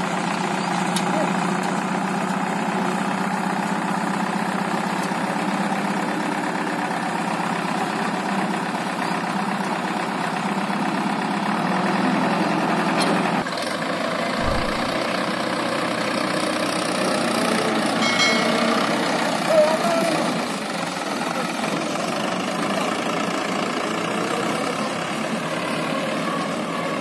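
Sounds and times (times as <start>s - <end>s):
diesel engines idling: 0.0s - 27.0s.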